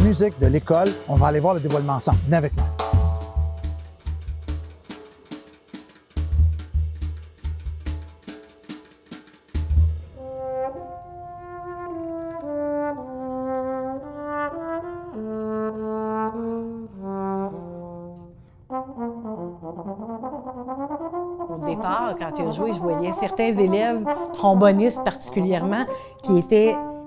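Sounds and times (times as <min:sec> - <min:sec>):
solo trombone melody: 0:00.0 - 0:04.4, 0:09.7 - 0:27.0
drum hits: 0:00.0 - 0:10.2.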